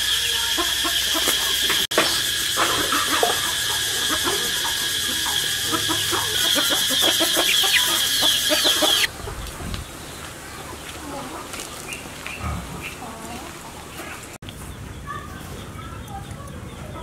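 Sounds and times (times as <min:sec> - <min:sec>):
high-pitched drone: 0:00.0 - 0:09.1
chickens clucking: 0:00.0 - 0:17.0.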